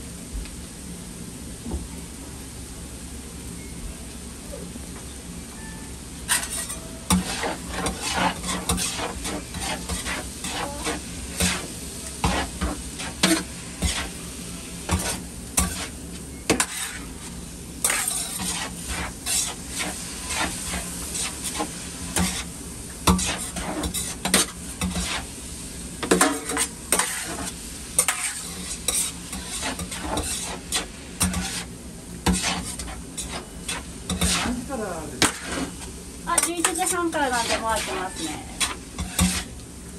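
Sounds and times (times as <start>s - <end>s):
food sizzling on griddle: 0.0s - 39.9s
metal spatula scraping and clacking: 6.3s - 14.1s, 14.9s - 15.9s, 16.5s - 17.1s, 17.8s - 22.5s, 23.1s - 25.2s, 26.0s - 34.6s, 35.2s - 35.8s, 36.4s - 39.5s.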